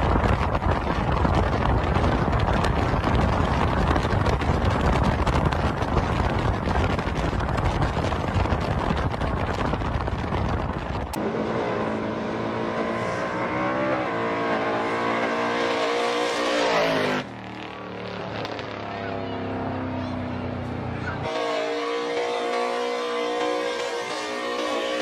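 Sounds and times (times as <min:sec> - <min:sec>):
wind rushing on microphone: 0:00.0 - 0:11.2
car engine revving hard: 0:11.2 - 0:17.3.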